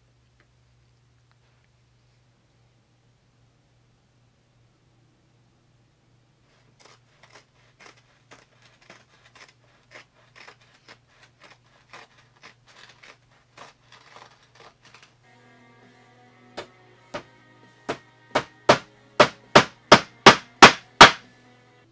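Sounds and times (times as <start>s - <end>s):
faint steady hum: 0.0s - 21.9s
scissors snipping canvas: 6.8s - 15.1s.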